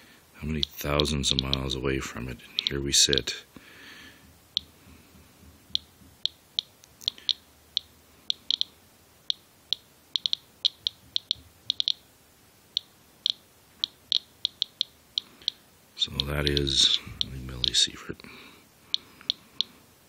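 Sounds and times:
geiger counter beeping: 0.5 - 1.8, 5.8 - 8.7, 9.3 - 12.0, 12.8 - 17.8.

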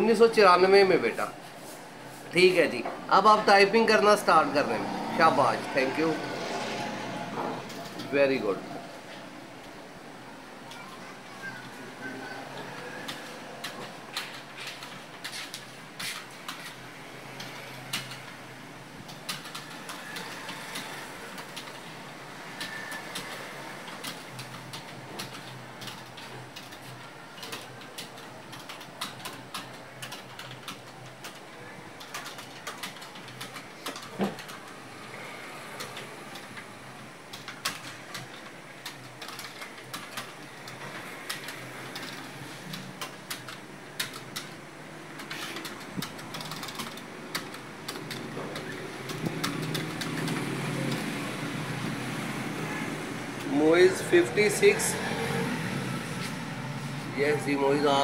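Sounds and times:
fast typing on a keyboard: 12.7 - 16.8, 17.4 - 18.4, 19.0 - 21.9, 22.5 - 34.8, 37.3 - 44.6, 45.2 - 51.6.

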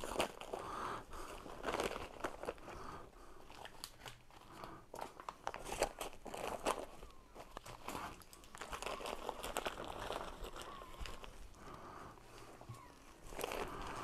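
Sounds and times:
box liner crinkling and rustling: 3.5 - 11.5, 12.4 - 14.0.

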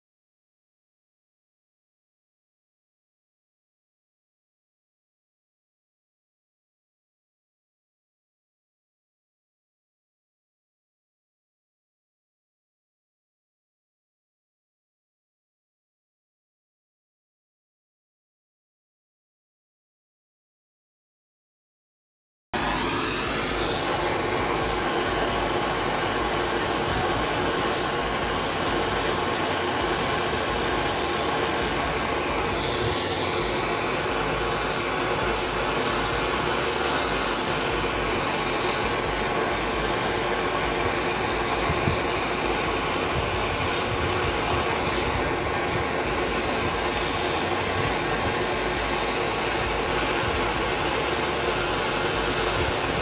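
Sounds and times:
high whine: 22.6 - 53.0
power tool motor running: 22.6 - 53.0.

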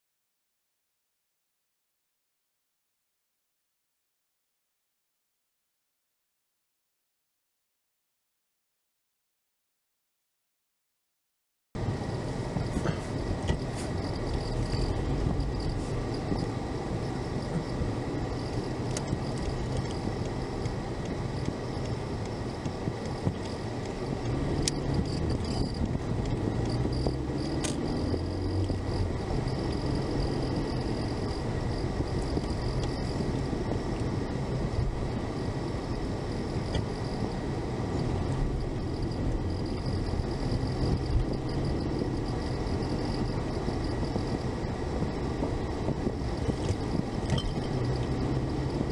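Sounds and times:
car engine and road rumble: 11.8 - 48.9.

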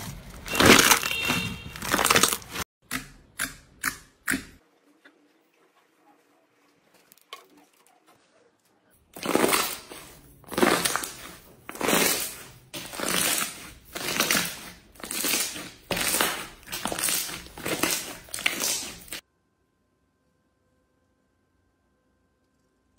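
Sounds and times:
slime squishing and popping: 0.5 - 2.6, 9.2 - 19.2.

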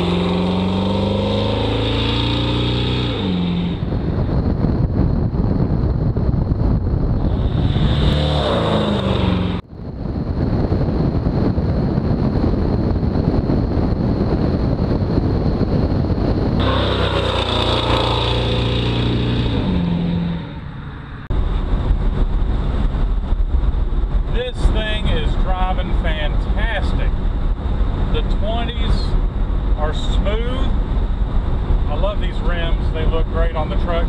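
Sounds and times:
pickup truck engine accelerating: 0.0 - 4.6, 7.1 - 9.7, 16.6 - 24.7
wind noise: 0.0 - 34.0.

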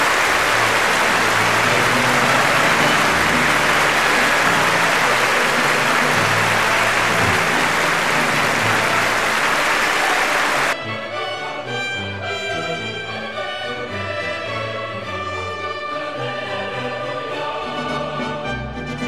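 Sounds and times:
group applause: 0.0 - 10.8
orchestral music: 0.0 - 19.0.

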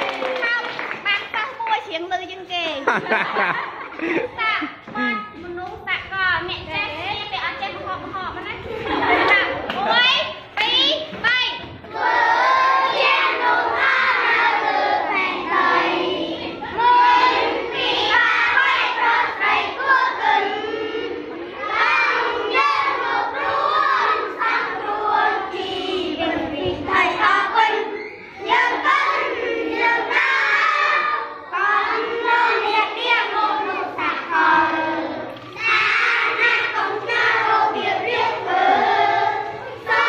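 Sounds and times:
children singing in unison: 11.9 - 40.0.

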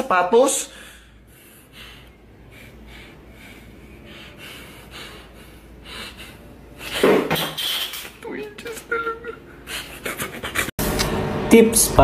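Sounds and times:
man breathing through nose: 0.7 - 7.1.

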